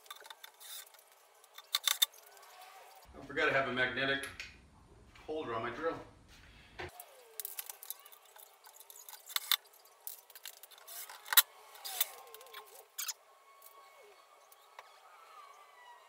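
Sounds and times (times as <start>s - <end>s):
clinks and knocks of handled parts: 0.0s - 2.5s, 7.0s - 13.1s.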